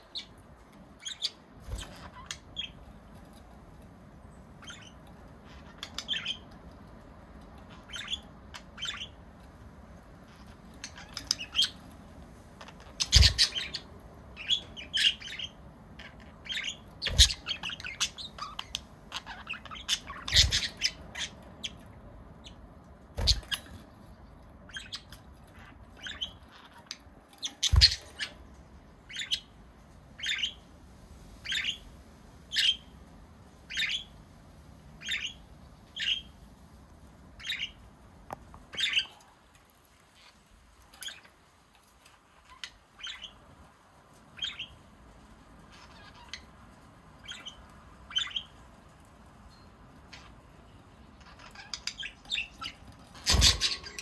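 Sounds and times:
budgerigars chirping: 4.6s - 6.5s, 7.7s - 9.2s, 10.3s - 11.8s, 12.6s - 22.6s, 23.2s - 23.9s, 24.7s - 28.4s, 29.1s - 29.5s, 30.2s - 30.6s, 31.4s - 31.8s, 33.7s - 34.1s, 35.0s - 35.4s, 36.0s - 36.3s, 37.4s - 37.8s, 38.8s - 39.2s, 42.5s - 43.4s, 44.4s - 44.8s, 47.2s - 48.6s, 51.2s - 54.0s.

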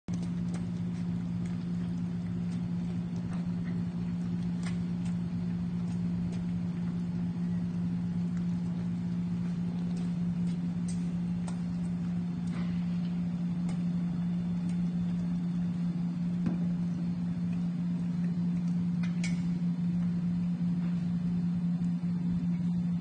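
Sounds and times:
dogs crunching dry kibble: 0.1s - 16.1s
low machine hum: 0.1s - 23.0s.

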